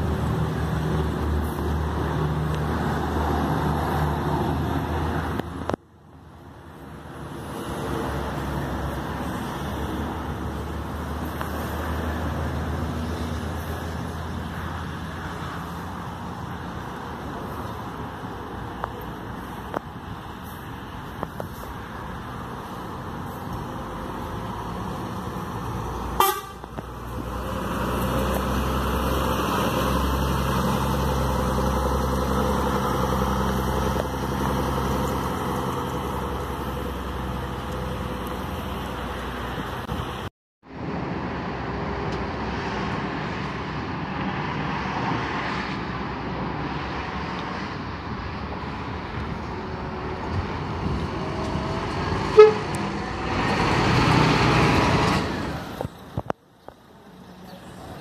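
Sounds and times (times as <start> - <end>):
bus diesel engines running: 0.0 - 58.0
short horn toots: 26.2 - 26.6, 52.3 - 52.8.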